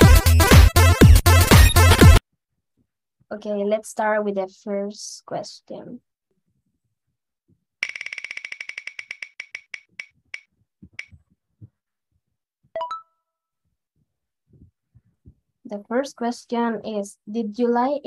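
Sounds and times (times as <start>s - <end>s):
spinner wheel ticking clicks: 7.8s - 11.2s.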